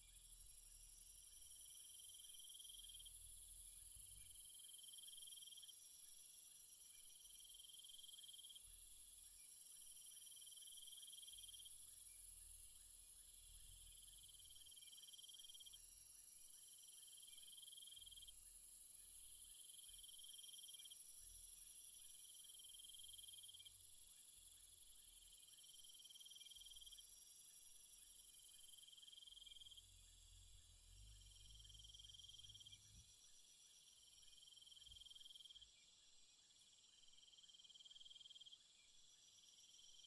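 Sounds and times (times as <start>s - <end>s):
insect chirring trill: 16.6s - 35.7s.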